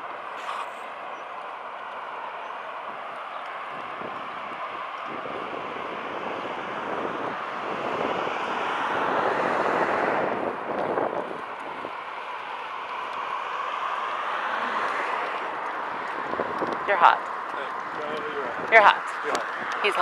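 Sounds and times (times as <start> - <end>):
street noise: 0.0 - 20.0
wind rushing on microphone: 2.8 - 12.2, 14.2 - 20.0.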